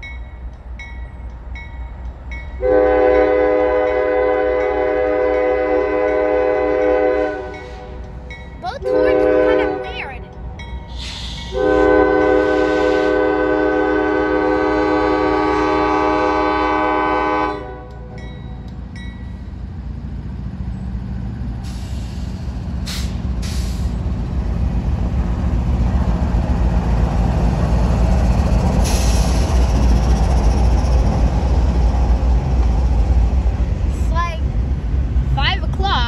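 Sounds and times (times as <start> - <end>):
train rumbling past on rails: 0.0 - 36.0
train horn blast: 2.6 - 8.0, 8.8 - 10.1, 11.5 - 18.2.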